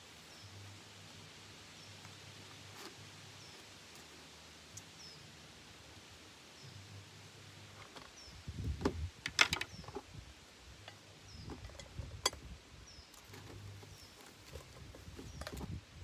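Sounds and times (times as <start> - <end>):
bird chirping: 4.8 - 5.4, 7.8 - 8.5, 9.5 - 10.1, 10.9 - 12.1, 12.8 - 15.8.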